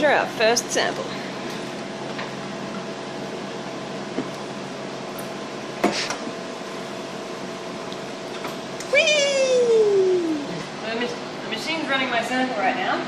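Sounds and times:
machine humming: 0:06.4 - 0:11.8.

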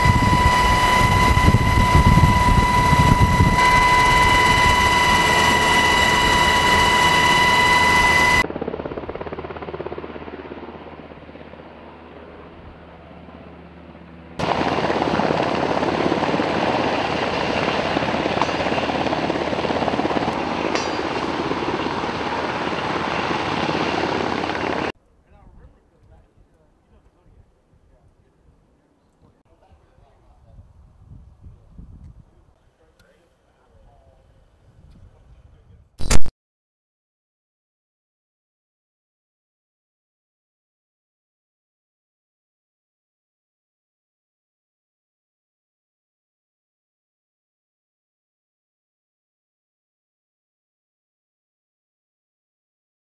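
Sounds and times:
helicopter rotor and engine: 0:00.0 - 0:25.0.

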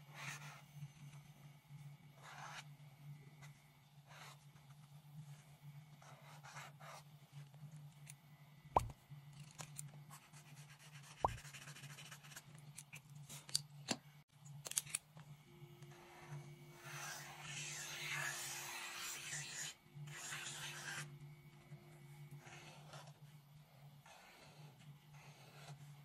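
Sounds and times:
low steady hum: 0:00.1 - 0:12.8
marker scratching on paper: 0:02.2 - 0:02.6, 0:06.0 - 0:07.0, 0:10.2 - 0:12.4, 0:16.1 - 0:21.1.

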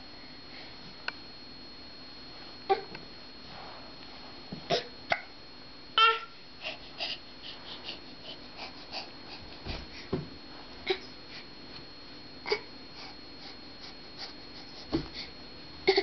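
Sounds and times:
baby grunting: 0:04.7 - 0:05.3.

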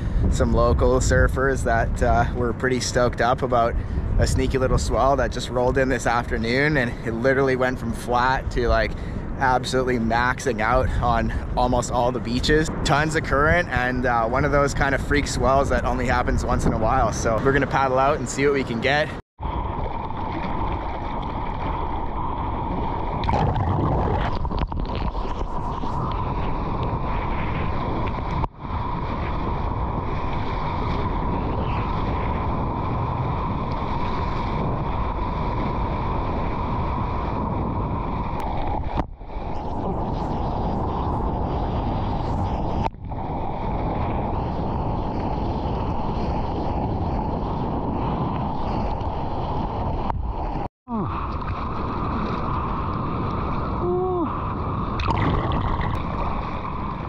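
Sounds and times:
ocean whitewater roar: 0:00.0 - 0:57.0
wind buffeting microphone: 0:00.0 - 0:57.0
water splashing against surfboard: 0:19.5 - 0:37.4, 0:55.0 - 0:57.0.

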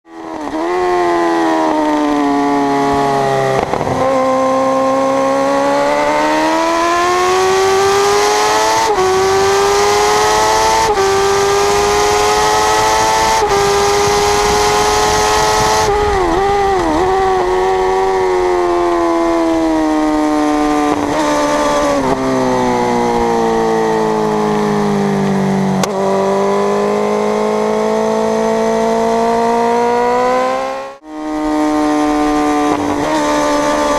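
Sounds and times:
motorcycle engine revving: 0:00.1 - 0:33.9
wind rushing on microphone: 0:03.5 - 0:05.3, 0:07.4 - 0:24.1.

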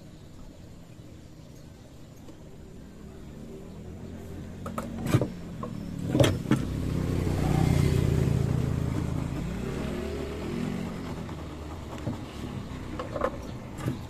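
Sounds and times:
vehicle engine passing by: 0:02.8 - 0:14.0.

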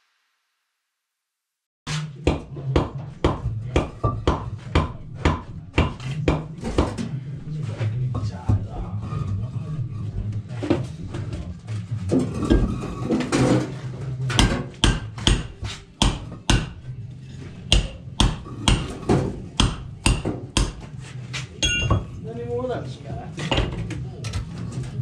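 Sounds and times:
hammer striking concrete block: 0:01.9 - 0:07.0, 0:14.3 - 0:16.9, 0:17.6 - 0:20.9, 0:21.6 - 0:22.2.

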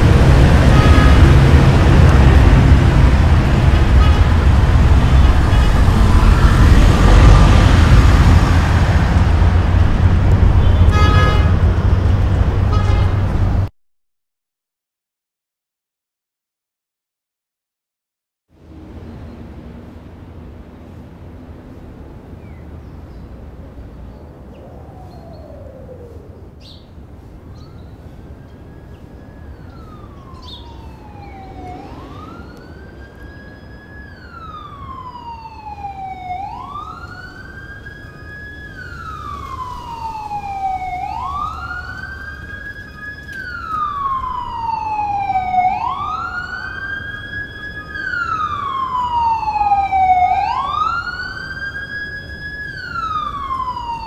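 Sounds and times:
siren wailing: 0:00.0 - 0:12.1, 0:24.3 - 0:54.0.

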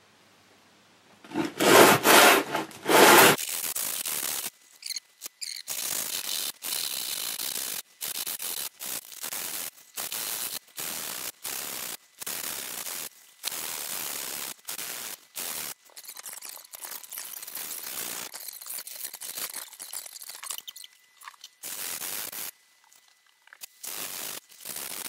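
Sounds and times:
sanding block rasping over foam: 0:01.3 - 0:03.4.

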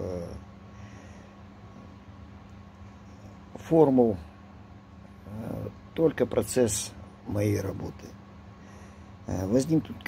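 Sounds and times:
faint thin whine: 0:00.0 - 0:10.0
steady low hum: 0:00.0 - 0:10.0
man speaking: 0:05.3 - 0:08.2, 0:09.3 - 0:10.0.

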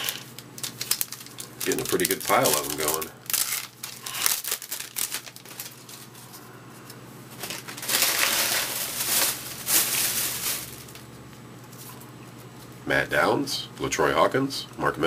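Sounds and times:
plastic wrapper crinkling: 0:00.0 - 0:06.4, 0:07.3 - 0:11.1
faint steady hum: 0:00.0 - 0:15.0.

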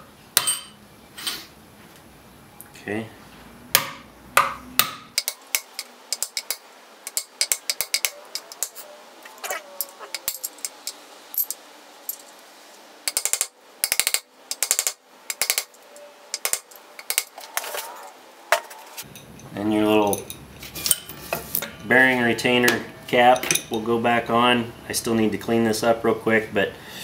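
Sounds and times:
small hammer tapping metal: 0:03.8 - 0:08.8, 0:13.1 - 0:17.4.

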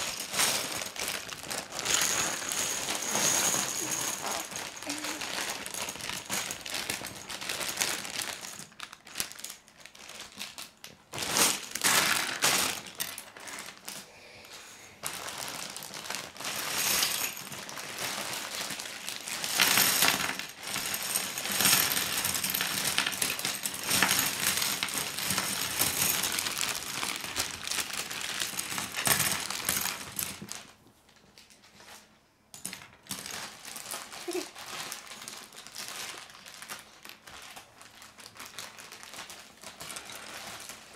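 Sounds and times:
plastic pieces clattering on table: 0:00.0 - 0:14.0, 0:15.0 - 0:40.9
plastic bag crinkling: 0:00.0 - 0:32.1, 0:32.8 - 0:40.9.

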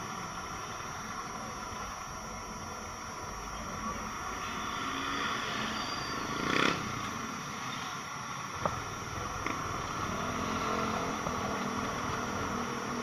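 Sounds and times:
motorcycle engine: 0:04.8 - 0:07.2, 0:09.0 - 0:13.0
road wind noise: 0:08.6 - 0:13.0.

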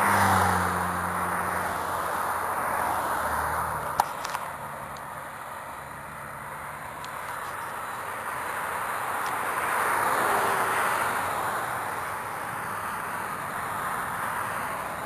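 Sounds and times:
cars passing on road: 0:00.0 - 0:15.0.

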